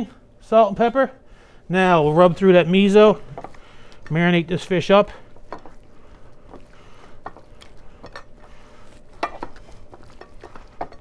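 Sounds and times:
hands rubbing fish: 5.3 - 11.0
clicks and knocks against bowl: 9.2 - 11.0.

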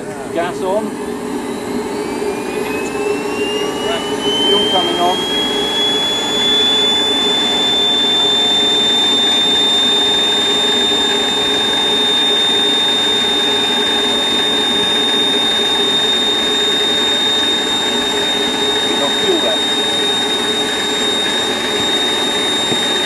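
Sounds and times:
gas turbine high-pitched whine: 0.0 - 23.0.

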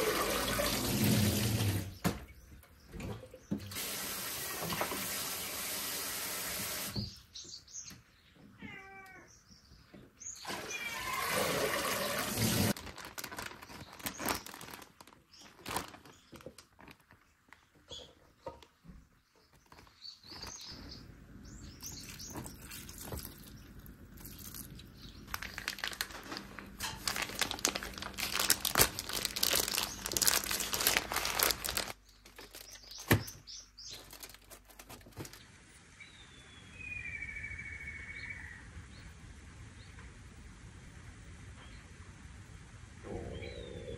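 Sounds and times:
short meow-like calls: 8.6 - 9.4
plastic bag crinkling: 11.9 - 17.7, 19.5 - 20.9, 22.1 - 35.4.

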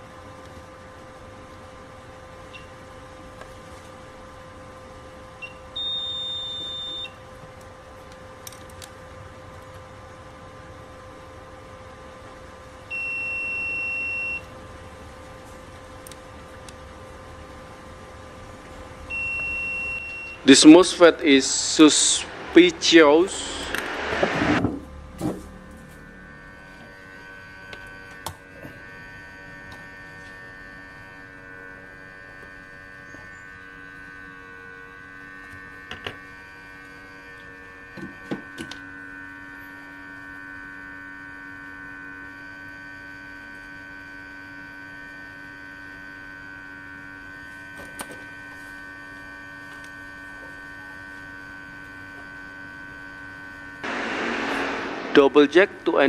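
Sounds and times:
hot-air rework station hum: 14.4 - 56.0.

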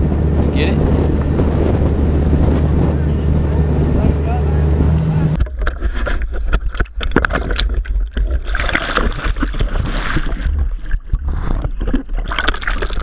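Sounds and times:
low rumble: 0.0 - 13.0
water sloshing and gurgling: 0.0 - 13.0.

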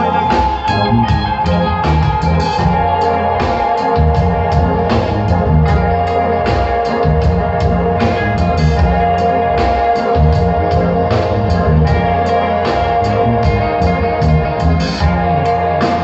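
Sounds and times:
bass notes: 0.0 - 16.0
drum kit beat: 0.0 - 16.0
held keyboard tone: 0.0 - 16.0.

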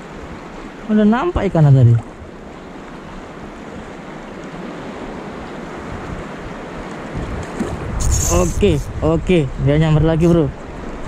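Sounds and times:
wind buffeting microphone: 5.4 - 11.0.

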